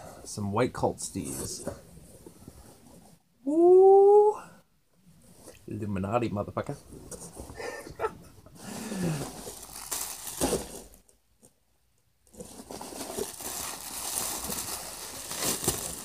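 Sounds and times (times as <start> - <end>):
plastic packaging crinkling: 9.0 - 11.1, 12.3 - 16.0.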